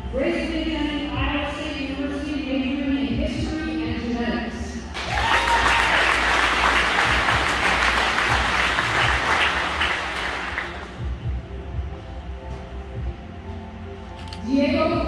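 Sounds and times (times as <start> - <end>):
audience applauding: 5.0 - 11.0.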